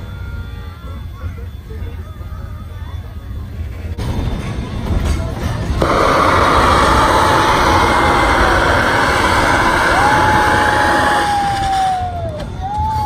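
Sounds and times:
high tone sliding down: 5.8 - 11.8
steam locomotive hissing steam: 5.8 - 12.1.

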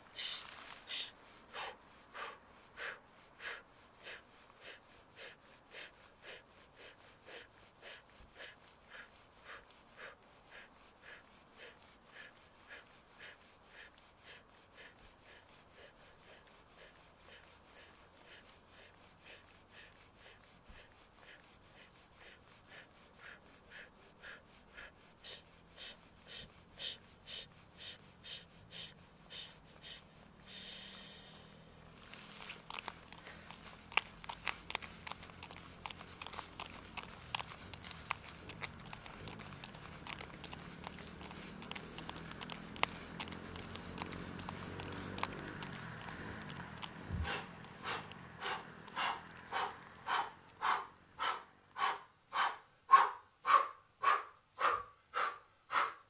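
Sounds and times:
woman breathing rhythmically: 0.0 - 56.0
jogging footsteps: 32.4 - 51.4.

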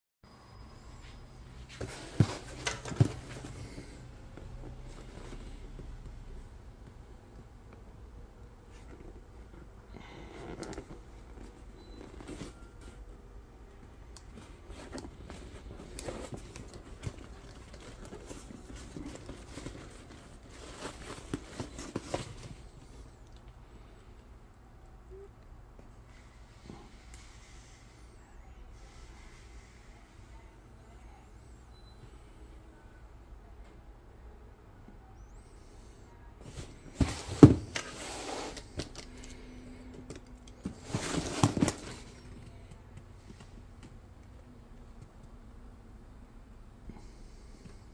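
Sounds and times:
cardboard rustling and scraping: 1.7 - 3.9, 14.4 - 22.8, 36.4 - 39.1, 40.5 - 42.6.

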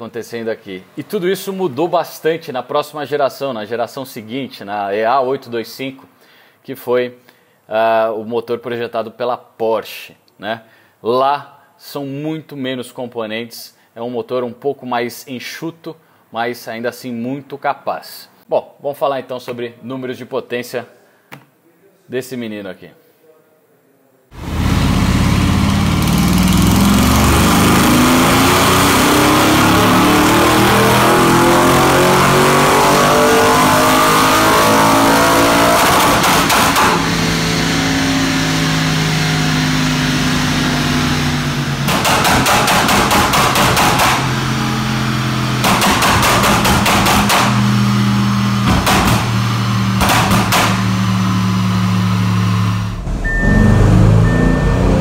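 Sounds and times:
car engine revving: 24.4 - 55.0
exhaust crackles and pops: 45.5 - 51.4.

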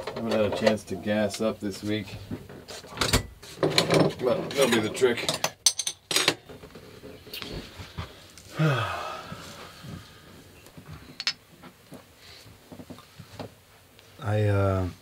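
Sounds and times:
man's wordless vocal sound: 8.5 - 9.4.

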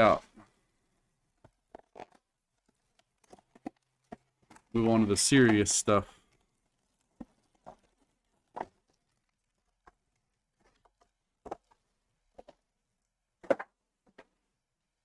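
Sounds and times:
cardboard box and packs handled: 1.3 - 12.7.

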